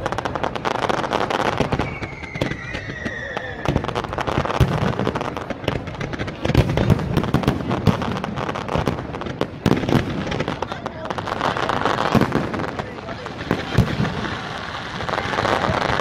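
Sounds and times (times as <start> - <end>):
falling firework whistle: 0.0 - 5.2
fireworks bangs: 0.0 - 16.0
fireworks crackling and popping: 0.0 - 16.0.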